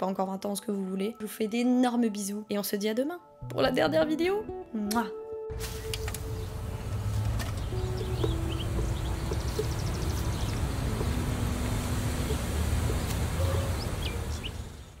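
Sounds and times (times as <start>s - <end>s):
small birds chirping: 7.4s - 15.0s.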